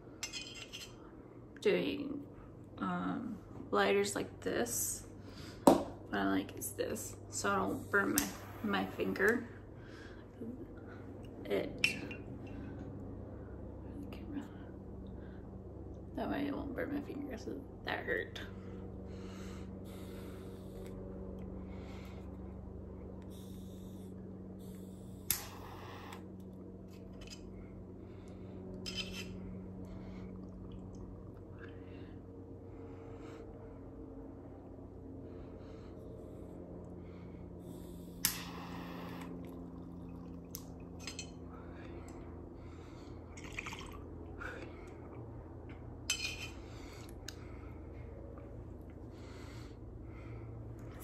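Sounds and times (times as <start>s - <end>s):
steady low hum: 0.0s - 51.0s
glass pipe clinking: 0.2s - 0.9s, 41.0s - 41.4s, 46.1s - 46.6s
person breathing: 5.1s - 5.7s, 7.5s - 11.3s, 18.5s - 26.4s, 31.5s - 39.9s, 41.5s - 45.4s, 46.4s - 51.0s.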